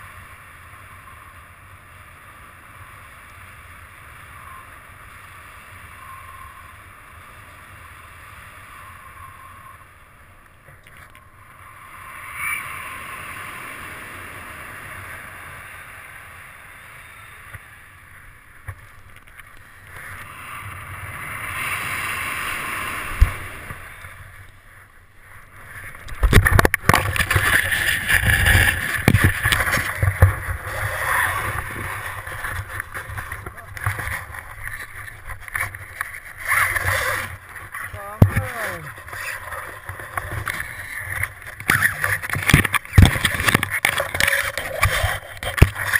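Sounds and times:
wind rushing past camera: 11.2 - 45.9
skidding through snow: 26.9 - 45.9.

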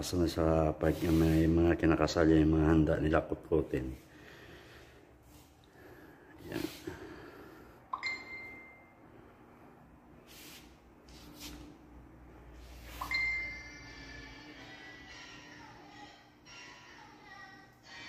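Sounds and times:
short hissing noises: 0.9 - 1.5, 10.3 - 11.7
high ringing tones: 7.9 - 9.2, 13.0 - 15.2.

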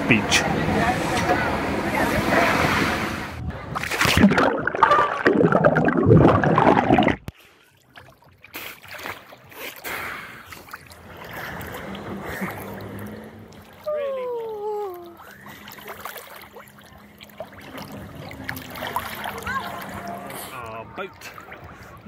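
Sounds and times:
people's voices: 0.0 - 3.8
sea and wind noise: 0.0 - 7.1
water lapping and gurgling: 0.0 - 22.0
small splashes: 3.7 - 22.0.

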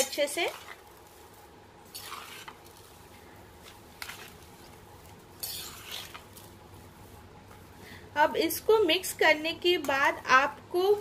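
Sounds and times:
metal spoon scraping a steel bowl: 1.9 - 2.6, 5.4 - 6.2.

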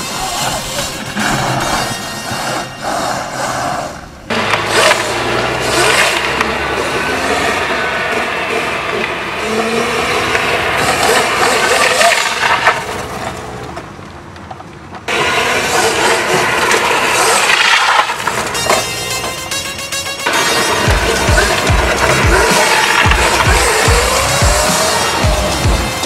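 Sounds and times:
vehicle engine running hard: 4.3 - 19.3, 20.2 - 26.0
music: 18.5 - 26.0.

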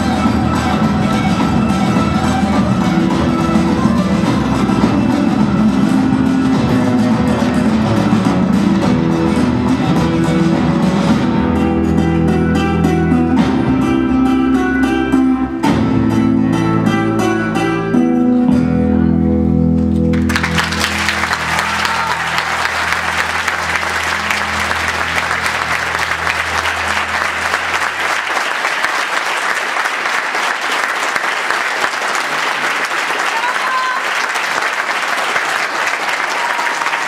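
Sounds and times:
flamenco guitar strumming: 0.0 - 28.1
audience applause: 20.1 - 37.0.

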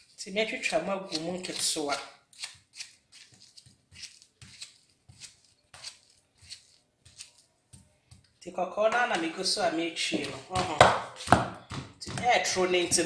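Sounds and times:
knife slicing plantain: 0.0 - 8.3.

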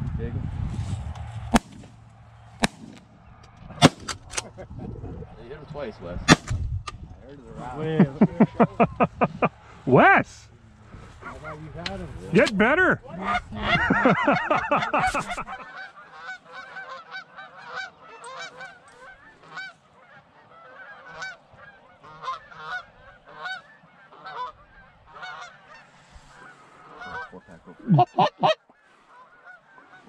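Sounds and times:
geese honking and clucking: 12.4 - 30.0.

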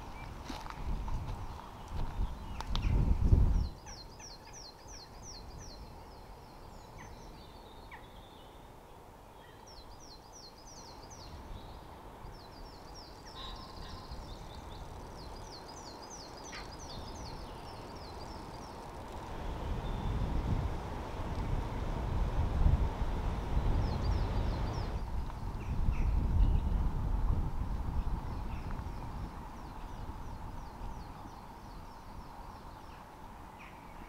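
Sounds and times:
wind buffeting microphone: 0.0 - 4.3, 11.2 - 34.0
songbird chirping: 0.0 - 20.8, 23.6 - 26.9, 28.0 - 34.0.

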